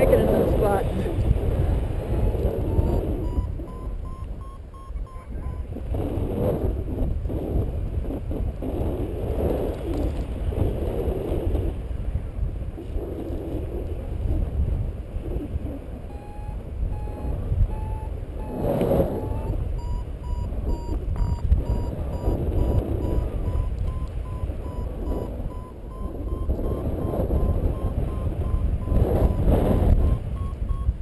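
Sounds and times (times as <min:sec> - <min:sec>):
wind buffeting microphone: 0:00.0 - 0:31.0
variometer beeping rising pitch: 0:02.0 - 0:05.7, 0:16.0 - 0:31.0.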